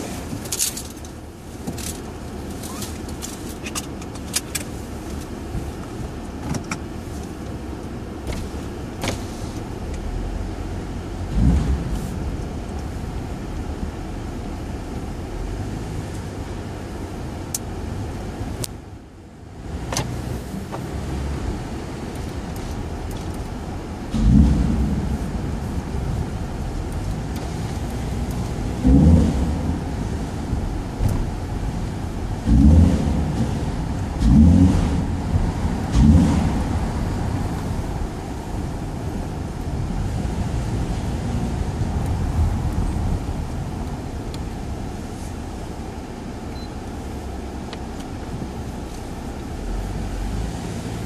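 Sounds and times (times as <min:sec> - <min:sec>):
car engine and tyre rumble: 0:00.0 - 0:51.0
small clicks and rattles: 0:00.4 - 0:05.2.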